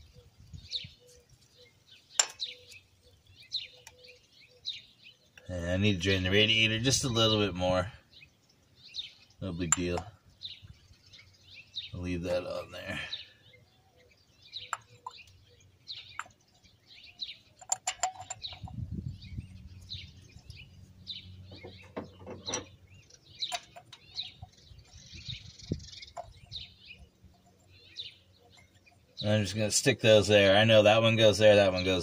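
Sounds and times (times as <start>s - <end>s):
birds chirping: 0.0s - 32.0s
metallic clicks and clinks: 17.6s - 18.7s.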